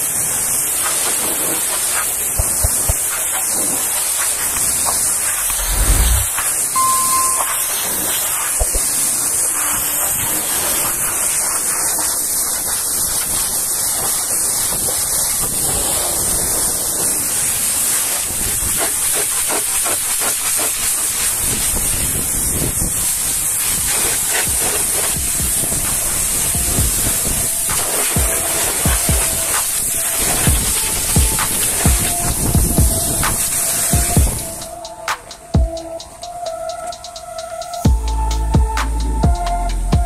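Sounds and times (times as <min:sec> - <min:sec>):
pressure washer spraying water: 0:00.0 - 0:38.3.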